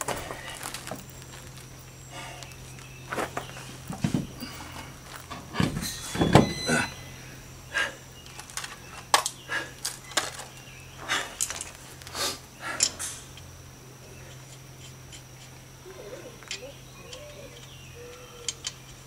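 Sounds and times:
faint low hum: 0.0 - 19.0
heavy thuds of wheel: 3.2 - 7.4.

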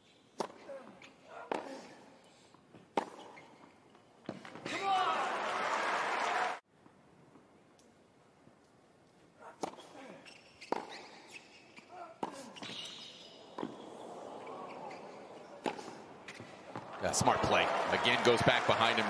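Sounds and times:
tennis ball bouncing: 2.8 - 3.4, 12.2 - 16.9
rackets striking tennis ball: 12.2 - 14.0, 14.7 - 16.9.

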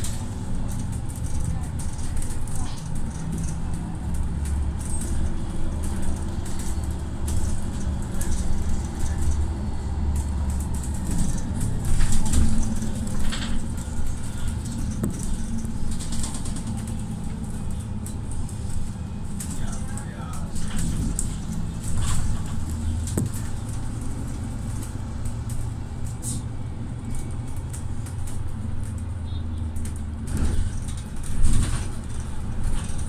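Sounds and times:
light clicks and rattles: 0.0 - 9.5
bus engine droning: 0.0 - 33.0.

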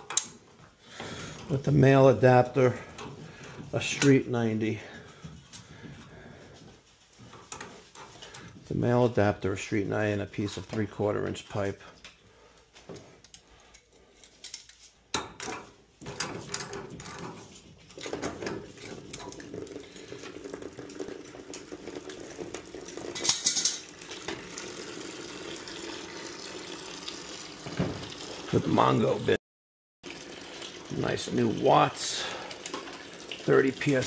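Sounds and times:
water running: 0.6 - 12.5, 16.0 - 29.4, 30.0 - 34.0
brass pipe fittings clinking: 23.1 - 24.0.

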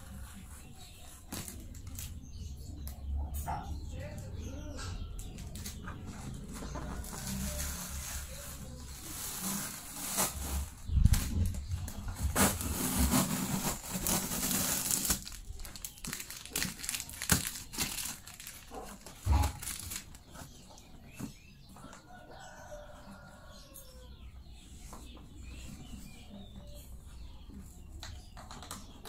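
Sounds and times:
plastic packaging crinkling: 6.9 - 20.5.

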